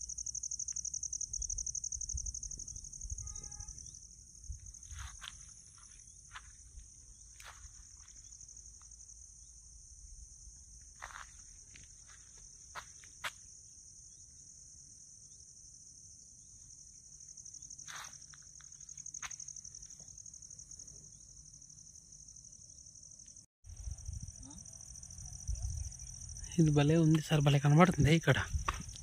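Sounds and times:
insects trilling: 0:00.0 - 0:29.0.

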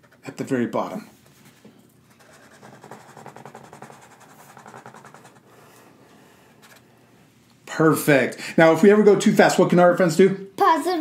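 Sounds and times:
marker squeaking on paper: 0:02.2 - 0:05.5.

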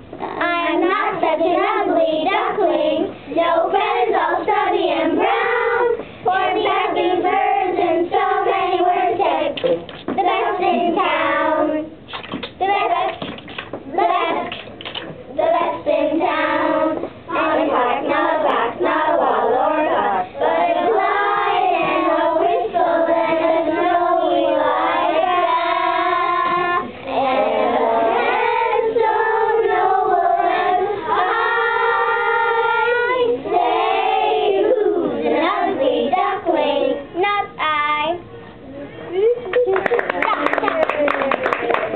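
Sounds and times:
children singing: 0:00.4 - 0:09.6, 0:15.4 - 0:37.0.

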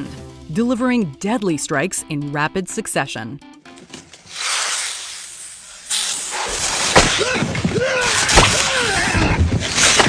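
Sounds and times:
snake hissing: 0:04.3 - 0:07.0.

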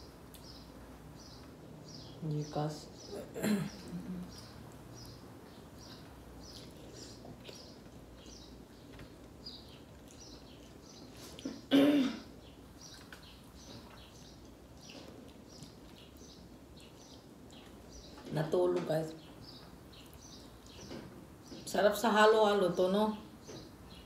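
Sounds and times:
person coughing: 0:03.3 - 0:04.2, 0:11.7 - 0:12.3.

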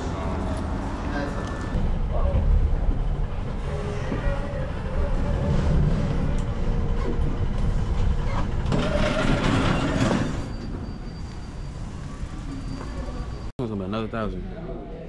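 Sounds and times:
steady low rumble: 0:00.3 - 0:08.7.

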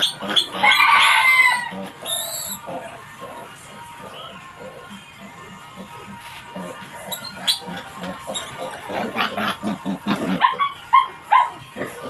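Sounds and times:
piglet squealing and grunting: 0:00.0 - 0:03.5, 0:06.5 - 0:12.0.

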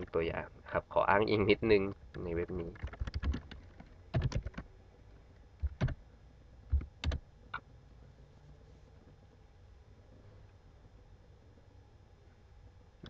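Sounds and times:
laptop keyboard typing: 0:02.1 - 0:04.7, 0:05.6 - 0:06.0, 0:06.7 - 0:07.6.

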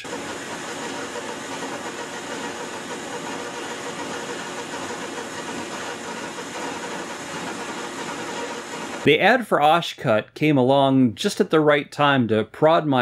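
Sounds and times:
metal lathe running: 0:00.0 - 0:09.1.

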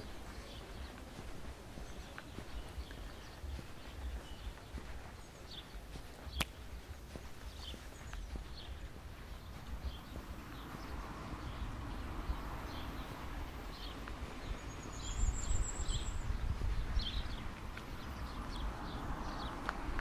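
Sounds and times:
footsteps on asphalt: 0:00.0 - 0:20.0.

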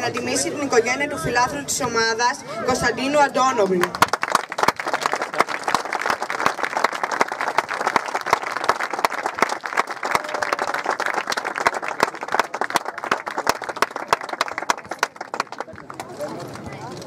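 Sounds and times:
crowd applauding: 0:03.6 - 0:17.0.

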